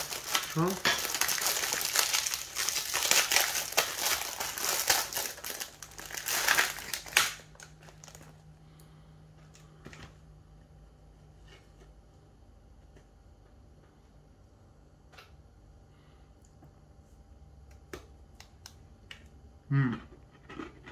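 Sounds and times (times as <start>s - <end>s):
packaging crinkling: 0.0s - 8.5s.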